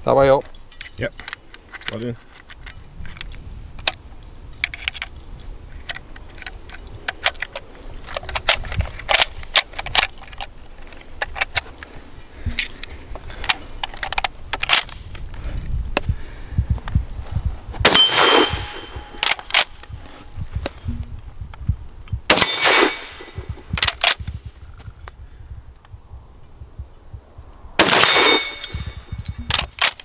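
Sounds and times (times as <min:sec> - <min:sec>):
metallic rifle loading clicks: 0:00.7 - 0:04.0, 0:04.6 - 0:11.7, 0:12.6 - 0:15.2, 0:17.9 - 0:20.0, 0:22.3 - 0:24.3, 0:27.8 - 0:30.0
gunshot with ringing tail: 0:17.8 - 0:19.3, 0:22.3 - 0:23.8, 0:27.8 - 0:29.2
sharp crack: 0:17.8 - 0:20.0, 0:22.3 - 0:24.4, 0:27.8 - 0:30.0.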